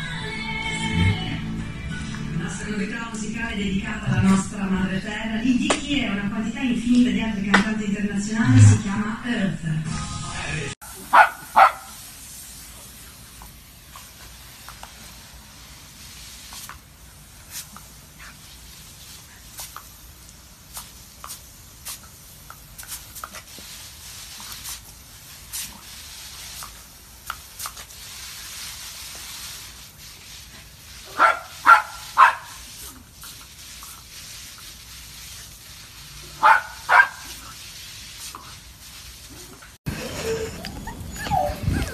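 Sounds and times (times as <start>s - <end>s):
garden hose spraying water: 0.0s - 41.9s
dog barking: 11.1s - 12.0s, 31.1s - 32.6s, 36.4s - 37.3s.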